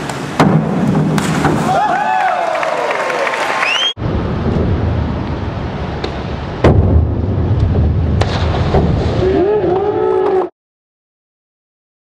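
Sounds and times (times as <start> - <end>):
diving springboard bang: 6.6 - 9.4.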